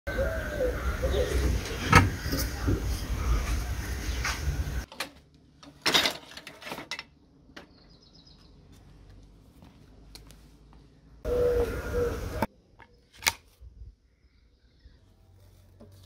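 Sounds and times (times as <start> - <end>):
tool heads clattering in crate: 5.7 - 7.1.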